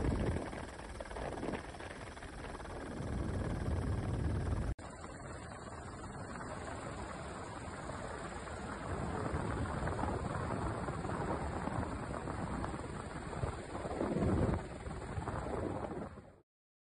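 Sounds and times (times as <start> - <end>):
wind buffeting microphone: 0.0 - 4.7, 8.2 - 16.4
helicopter rotor and turbine rumble: 0.0 - 16.4.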